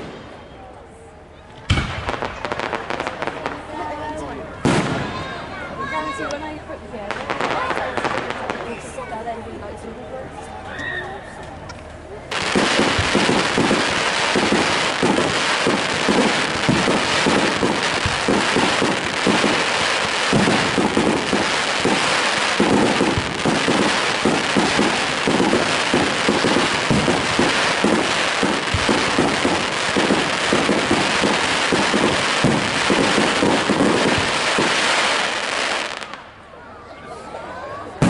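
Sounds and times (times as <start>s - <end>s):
fireworks bangs: 0.0s - 0.7s, 1.4s - 9.2s, 12.3s - 36.5s
crackle of bursting shells: 12.3s - 35.3s.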